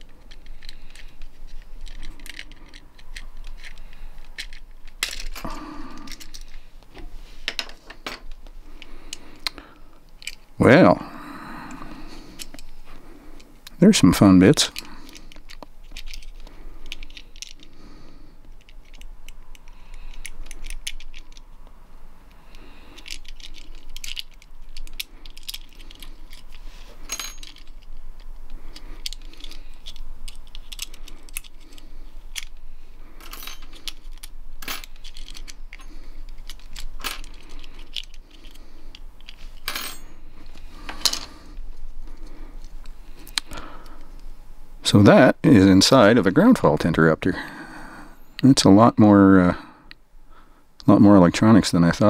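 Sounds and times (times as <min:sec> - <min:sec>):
plastic parts clicking and scraping: 0:00.0 - 0:10.5, 0:12.3 - 0:13.8, 0:14.5 - 0:17.8, 0:18.4 - 0:21.5, 0:22.3 - 0:44.3.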